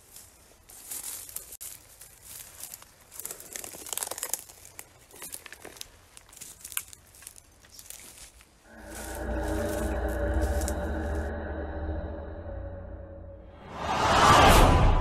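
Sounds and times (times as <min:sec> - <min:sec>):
twigs and leaves crackling: 0:00.0 - 0:11.5
twigs snapping: 0:00.8 - 0:11.2.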